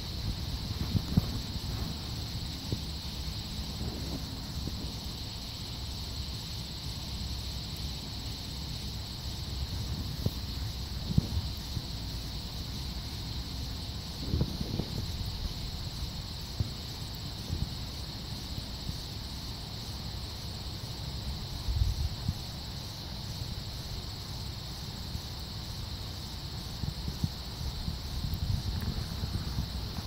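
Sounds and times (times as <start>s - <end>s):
wind on microphone: 0.0s - 5.0s, 9.7s - 12.0s, 14.1s - 15.8s, 26.8s - 30.0s
insects chirping chorus: 0.0s - 30.0s.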